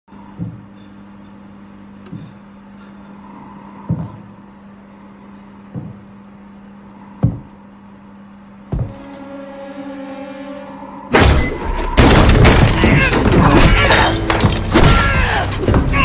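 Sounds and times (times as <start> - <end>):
low drone: 8.8 - 14.7.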